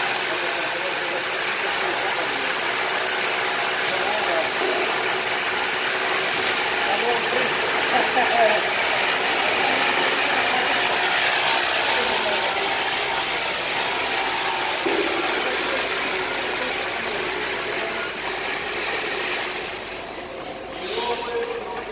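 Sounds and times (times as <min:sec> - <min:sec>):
packaging machinery drone: 0:00.0 - 0:21.9.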